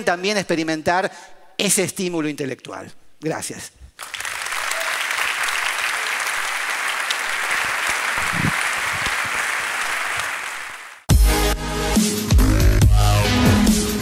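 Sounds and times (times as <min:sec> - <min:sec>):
audience applauding: 0:04.0 - 0:11.1.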